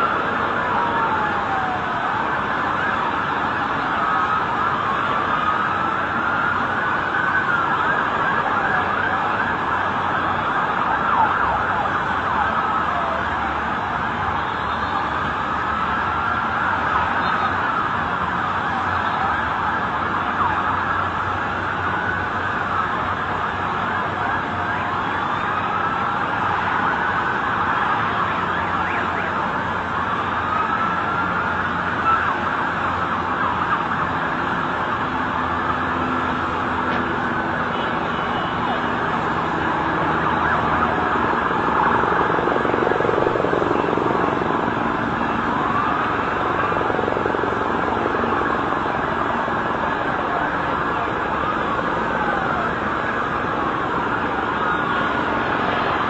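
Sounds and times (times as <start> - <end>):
emergency sirens wailing: 0.0 - 56.0
steady background noise: 0.0 - 56.0.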